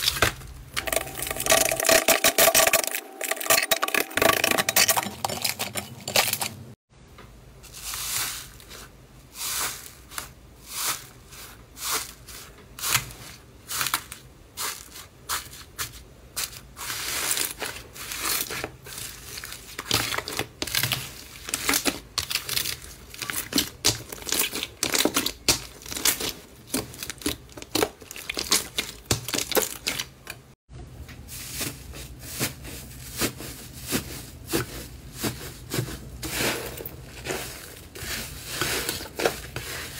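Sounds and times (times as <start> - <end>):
slime crackling and squelching: 7.7 - 30.6, 31.3 - 39.9.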